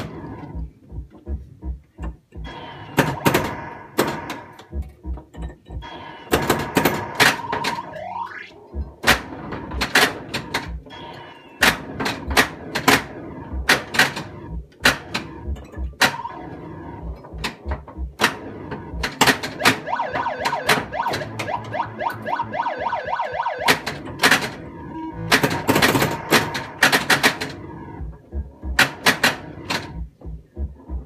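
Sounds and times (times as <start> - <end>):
pinball ball clacking on bumpers: 0.0 - 30.2
pinball electronic sound effects: 1.2 - 30.0
rising siren-like sweeps: 7.4 - 8.6, 19.6 - 23.9.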